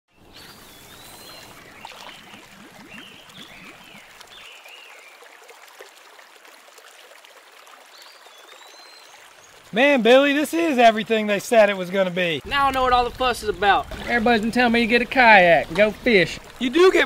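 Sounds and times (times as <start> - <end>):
water running and trickling: 0.3 - 17.0
low rumble: 12.4 - 15.6.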